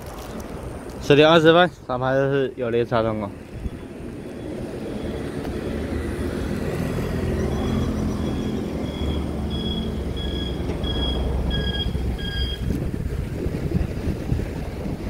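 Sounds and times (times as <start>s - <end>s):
wind on microphone: 3.4s - 7.4s, 11.2s - 15.0s
railway warning chime beeping: 3.6s - 5.5s, 7.3s - 12.8s.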